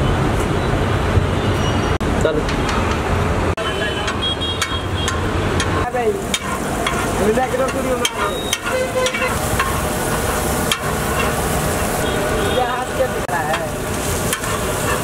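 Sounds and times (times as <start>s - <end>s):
metal spatula scraping on griddle: 4.6s - 12.7s, 13.4s - 15.0s
vegetables sizzling in fat: 5.0s - 15.0s.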